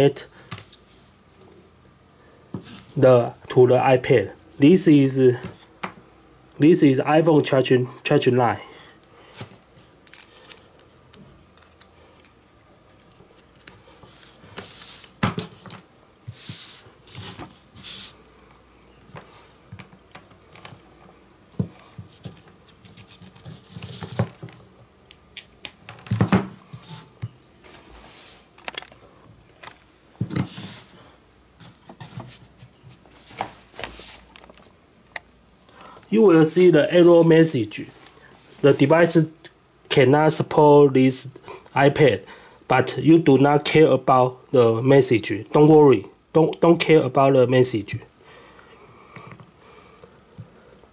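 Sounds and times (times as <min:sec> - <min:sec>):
plastic rustling: 0:31.6 - 0:34.8.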